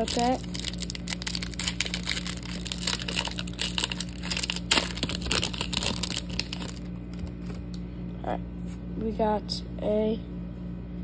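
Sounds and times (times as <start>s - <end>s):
plastic wrapper tearing and crinkling: 0.0s - 7.7s
air conditioner hum: 0.0s - 11.0s.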